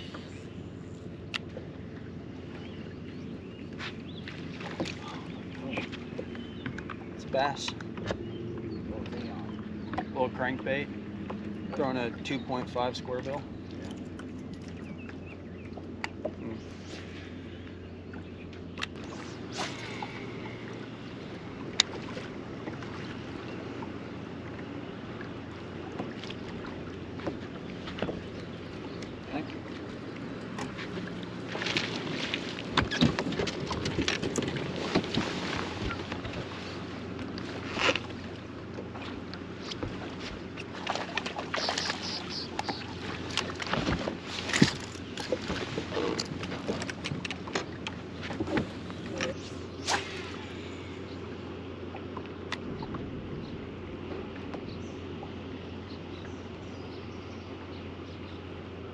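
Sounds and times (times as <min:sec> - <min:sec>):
steady low hum: 0:00.0 - 0:58.9
water noise: 0:00.0 - 0:58.9
wind: 0:00.0 - 0:58.9
fish splashing at the surface: 0:40.7 - 0:43.9
fishing rod swish: 0:49.8 - 0:50.4.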